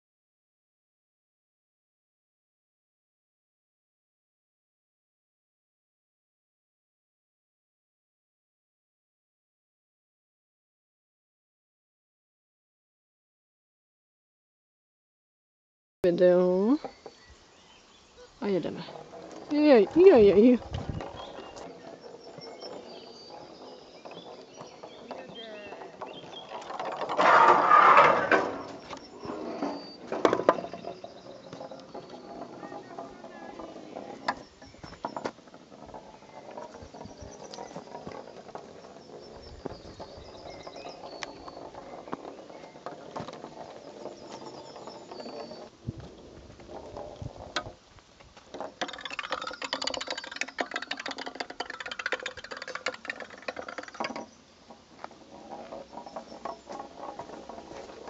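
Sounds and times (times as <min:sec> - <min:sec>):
ball rolling on wooden rail: 0:16.1 - 0:58.0
clicks and knocks: 0:48.4 - 0:58.0.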